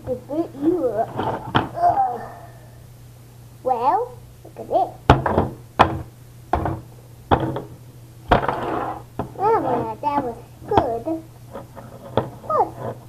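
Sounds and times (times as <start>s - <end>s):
plastic toys knocking on tabletop: 5.1s - 7.7s, 8.3s - 9.4s.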